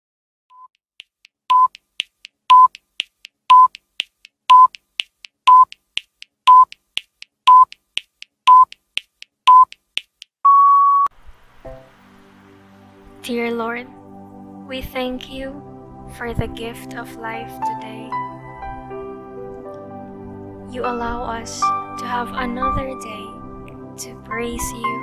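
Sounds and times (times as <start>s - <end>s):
high ticks: 0.6s - 10.4s
longer electronic beep: 1.5s - 1.7s, 2.5s - 2.7s, 3.5s - 3.7s, 4.5s - 4.7s
short electronic beeps: 1.5s - 1.8s, 2.5s - 2.8s, 3.5s - 3.8s, 4.5s - 4.8s, 5.5s - 5.8s, 6.5s - 6.8s, 7.5s - 7.8s, 8.5s - 8.8s, 9.5s - 9.8s.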